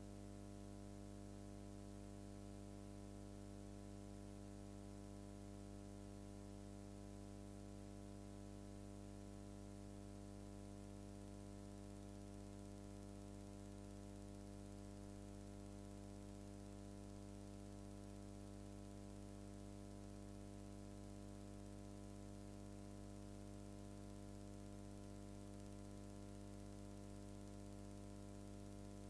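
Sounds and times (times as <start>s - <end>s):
electrical hum: 11.4s - 29.0s.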